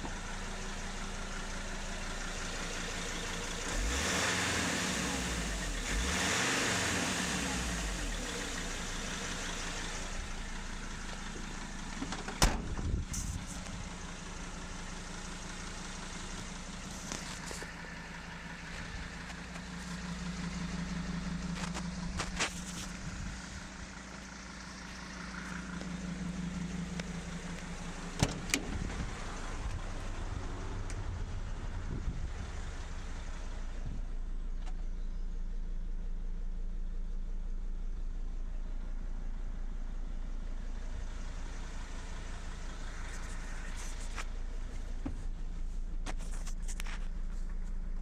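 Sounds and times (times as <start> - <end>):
diesel engine idling: 0.0 - 48.0
sharp engine knocks: 12.0 - 13.0, 28.2 - 29.0.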